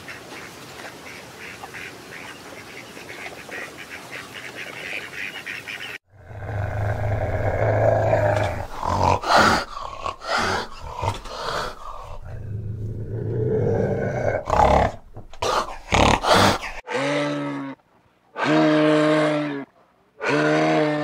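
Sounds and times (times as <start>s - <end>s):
cat growling: 6.1s - 16.8s.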